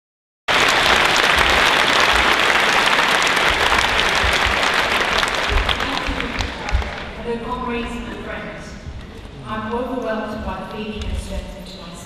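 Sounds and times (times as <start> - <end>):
audience applauding: 0.5 - 7.2.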